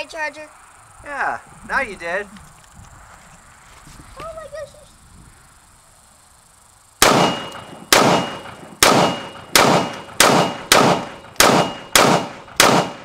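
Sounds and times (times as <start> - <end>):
rifle shots: 7.0 - 13.0.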